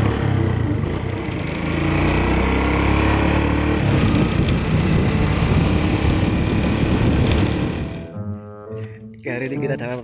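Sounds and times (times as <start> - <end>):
motor scooter engine running: 0.0 - 8.1
wind noise on microphone: 3.8 - 8.1.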